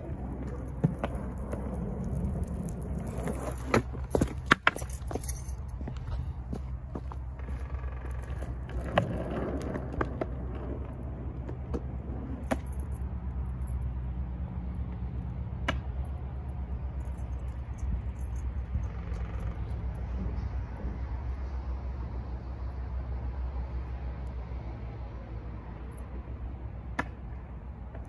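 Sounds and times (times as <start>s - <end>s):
skateboard clacks: 0.0s - 4.8s, 7.4s - 12.7s
skateboard wheels rolling on asphalt: 0.0s - 17.2s, 26.5s - 28.0s.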